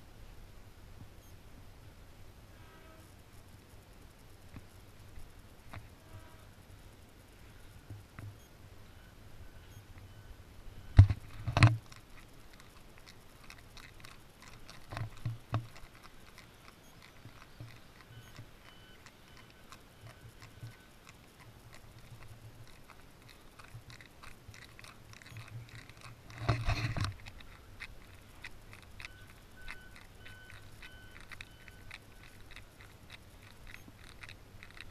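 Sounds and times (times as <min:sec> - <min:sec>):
handheld camera thumps and rustling: 0:10.9 - 0:18.7, 0:20.0 - 0:34.9
faint ticks: 0:10.9 - 0:34.9.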